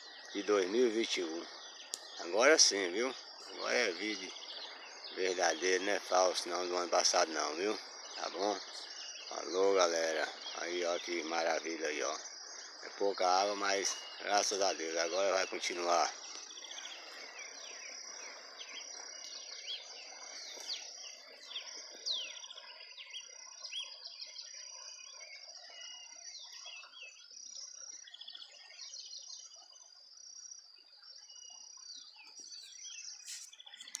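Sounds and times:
flowing water rushing: 0.0s - 24.1s
birds chirping: 0.0s - 29.7s, 30.9s - 34.0s
high insect drone: 0.0s - 34.0s.

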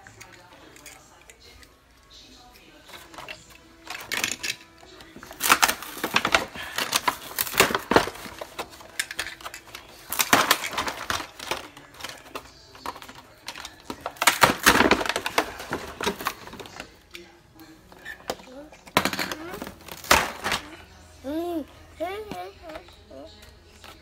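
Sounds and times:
plastic toy pieces clicking: 3.0s - 16.7s.

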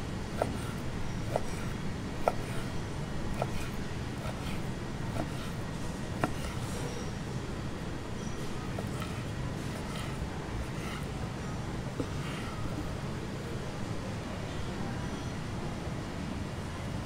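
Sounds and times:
steady low hum: 0.0s - 14.9s
knife slicing meat: 0.3s - 7.0s, 8.6s - 11.2s, 12.0s - 12.8s
knife knocking on wooden board: 0.4s - 2.7s, 3.3s - 5.6s, 6.2s - 6.7s.

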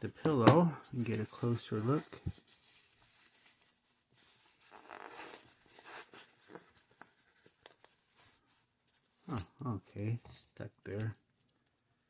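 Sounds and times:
soft fabric rustling: 0.8s - 9.3s.

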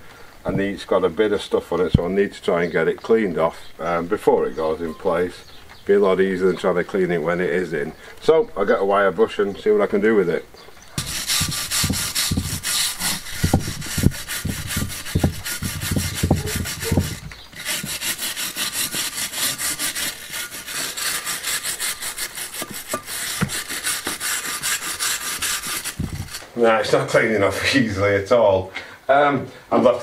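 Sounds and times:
low knocks: 11.0s - 17.4s
wire brush scrubbing stone: 11.0s - 26.5s.

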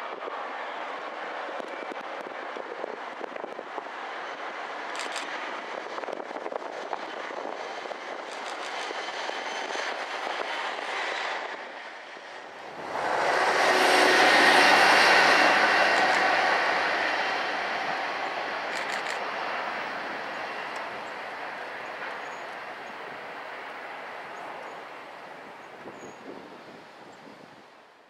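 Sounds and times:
diesel locomotive passing: 0.0s - 28.0s.

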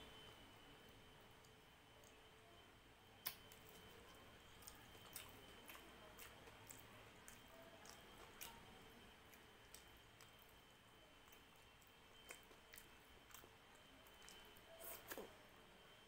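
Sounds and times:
wet eating sounds: 3.2s - 10.6s, 11.2s - 15.4s.

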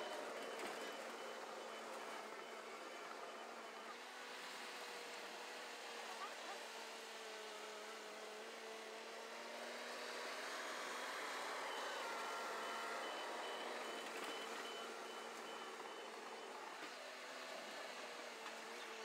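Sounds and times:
backup alarm beeping: 0.0s - 3.9s, 11.8s - 16.5s
dozer engine running: 0.0s - 19.0s.

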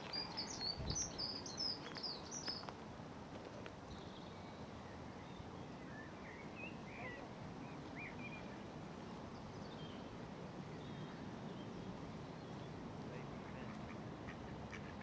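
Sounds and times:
small birds chirping: 0.0s - 2.8s
steady background noise: 0.0s - 15.0s.

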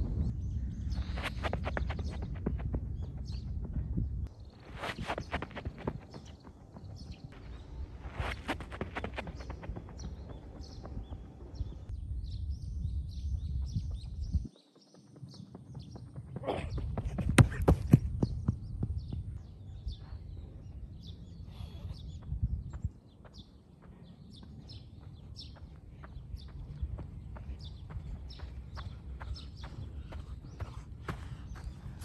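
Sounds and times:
wind rumbling on microphone: 0.0s - 14.5s, 16.6s - 32.0s
birds chirping: 0.0s - 32.0s
running footsteps on turf: 1.1s - 11.8s, 23.1s - 32.0s.

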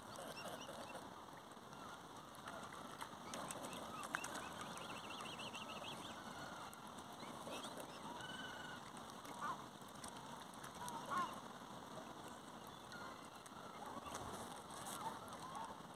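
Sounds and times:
waterfowl calling: 0.0s - 1.1s, 1.7s - 9.6s
faint outdoor hiss: 0.0s - 15.9s.

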